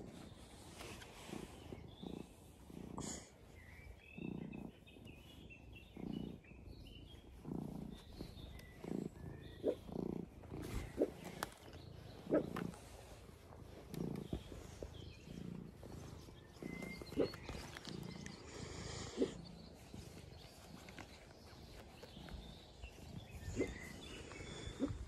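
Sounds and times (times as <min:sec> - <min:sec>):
cat purring: 0:00.0 - 0:25.0.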